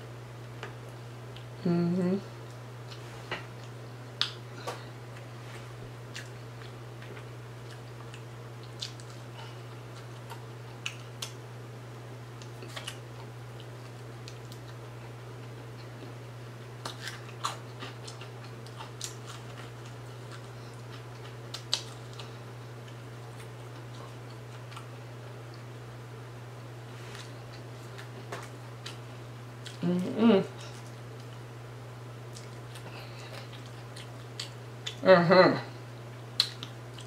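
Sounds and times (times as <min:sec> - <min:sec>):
steady low hum: 0:00.0 - 0:37.0
crunchy chewing of fried fish: 0:02.4 - 0:11.6, 0:12.2 - 0:26.0, 0:26.7 - 0:29.8, 0:30.5 - 0:35.0, 0:36.1 - 0:37.0.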